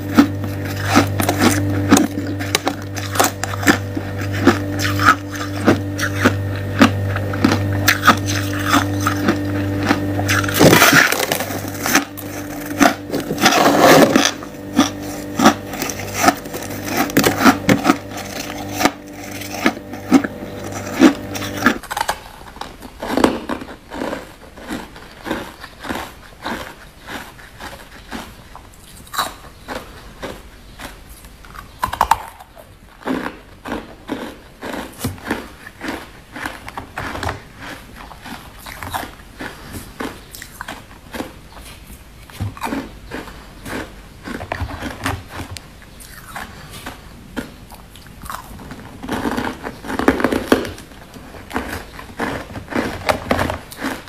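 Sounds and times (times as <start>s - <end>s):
steady hum: 0.0s - 23.0s
ice crunching and chewing: 0.0s - 54.0s.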